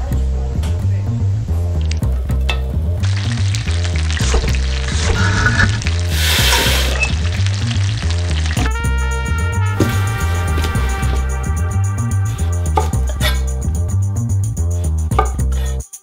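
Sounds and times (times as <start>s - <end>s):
background music: 0.0s - 16.0s
garlic sizzling in hot oil: 1.8s - 11.4s
liquid poured into hot pan: 3.0s - 8.7s.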